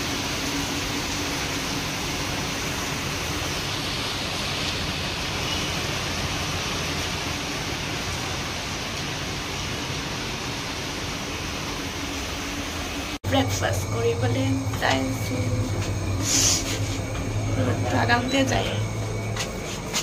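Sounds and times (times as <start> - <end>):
rain on pavement and pool: 0.0 - 13.2.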